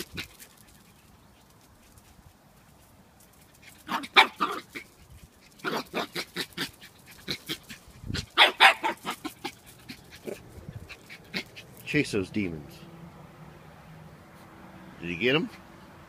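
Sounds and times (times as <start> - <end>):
puppy barking and yipping: 3.6 - 11.8.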